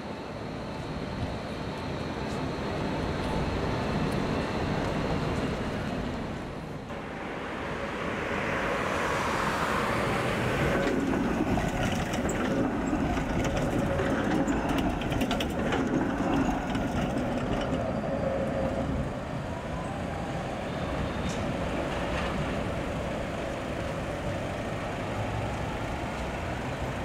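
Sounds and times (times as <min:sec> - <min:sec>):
tram rumbling past: 0:00.0 - 0:27.0
wheel clicks over rail joints: 0:10.6 - 0:19.0.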